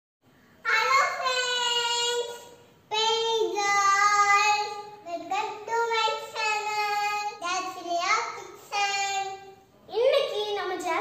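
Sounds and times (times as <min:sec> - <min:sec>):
girl singing: 0:00.7 - 0:09.4.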